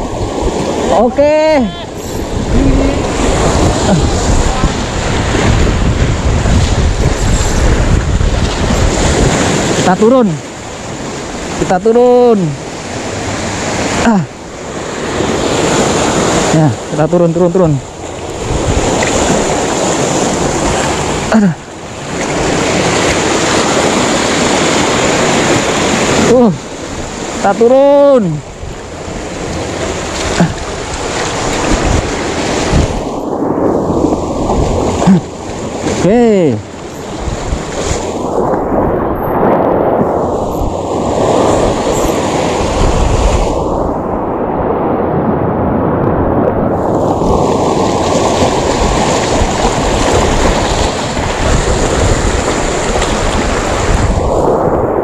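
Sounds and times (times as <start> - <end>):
wind buffeting microphone: 0.0 - 11.7, 12.6 - 55.0
surf washing over rocks: 0.0 - 55.0.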